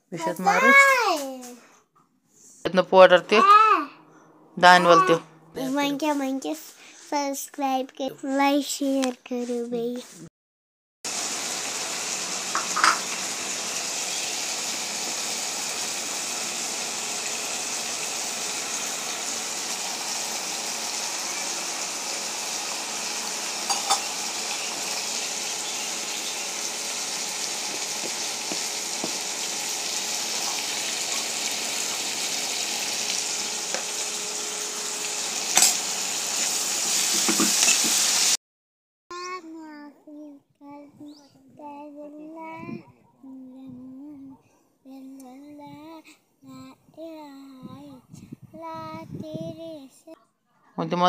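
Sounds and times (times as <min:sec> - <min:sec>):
vegetables sizzling in oil: 0:11.1 - 0:38.4.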